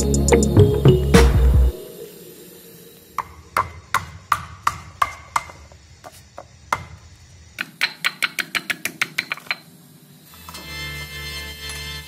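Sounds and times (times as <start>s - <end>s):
stone pestle pounding in mortar: 3.6s - 5.6s, 7.6s - 9.6s.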